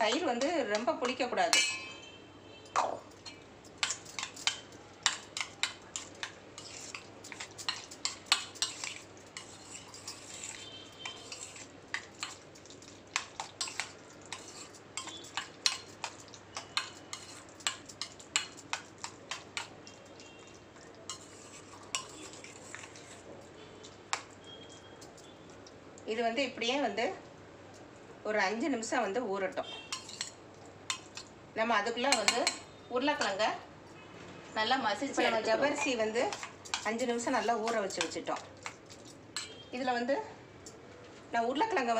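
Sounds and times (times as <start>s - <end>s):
spoon clinking in steel bowl: 1.5s - 2.0s, 21.1s - 22.2s, 29.9s - 31.3s, 32.1s - 33.3s, 39.4s - 39.6s.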